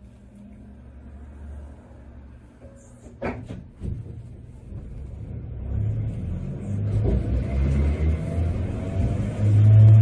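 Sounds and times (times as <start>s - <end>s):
streetcar low hum: 0.0s - 10.0s.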